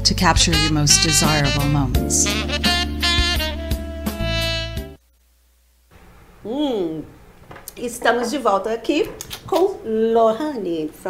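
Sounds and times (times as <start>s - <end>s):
instrumental background music: 0.0s - 5.0s.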